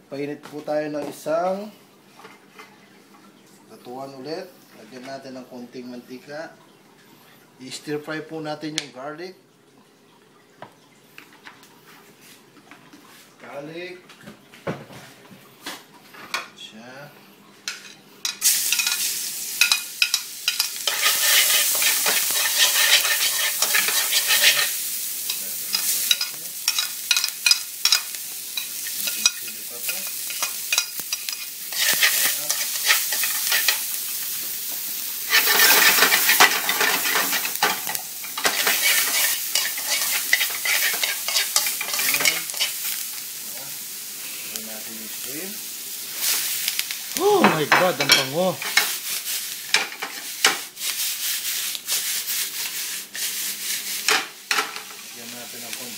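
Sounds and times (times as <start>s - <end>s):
tongs scraping and tapping a wok: 17.7s - 34.0s, 35.3s - 43.1s, 47.8s - 49.0s, 49.7s - 51.0s, 54.0s - 55.0s
vegetables sizzling in hot oil: 17.7s - 55.9s.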